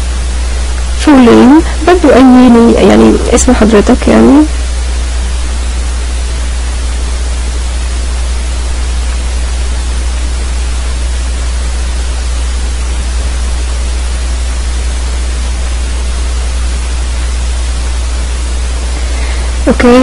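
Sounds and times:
low electrical hum: 0.0 - 20.0
steady hiss: 0.0 - 20.0.

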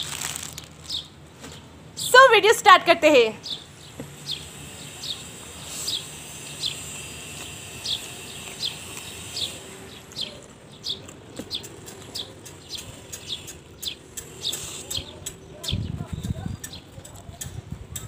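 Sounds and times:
bird chirping: 3.4 - 17.7.

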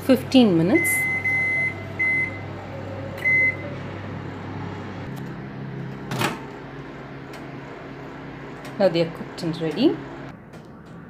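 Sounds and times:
microwave oven humming: 0.0 - 11.0
oven door opening: 0.8 - 11.0
keypad beep: 3.2 - 3.6.

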